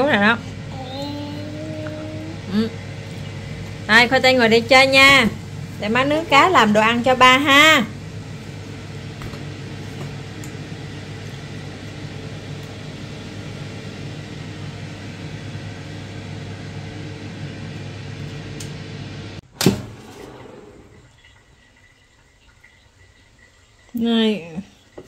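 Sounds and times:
air fryer humming: 0.0s - 25.0s
loud clunk: 19.5s - 20.7s.

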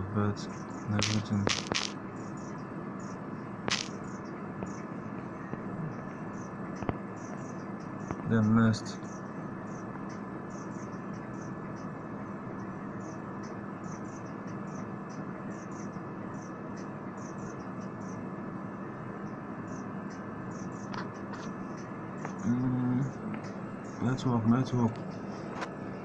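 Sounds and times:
low hum: 0.0s - 26.0s
faint insect chirping: 0.4s - 26.0s.

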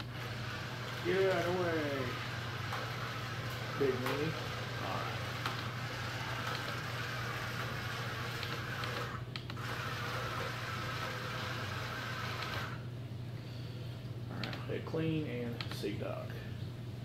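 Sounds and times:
robot vacuum motors running: 0.0s - 12.9s.

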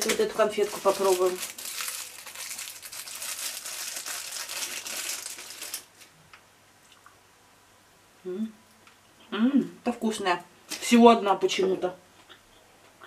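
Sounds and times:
candy wrapper crinkling: 0.0s - 6.2s.

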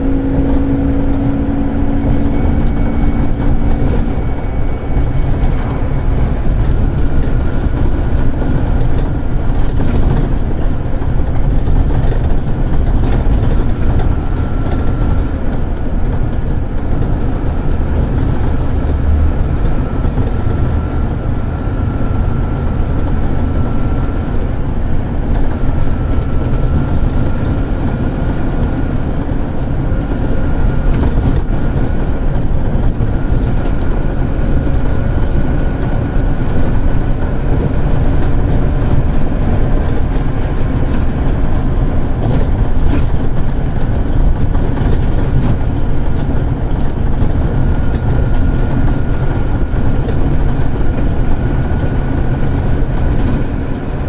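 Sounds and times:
faint high whine: 0.0s - 7.9s
bus diesel engine rumble: 0.0s - 54.0s.

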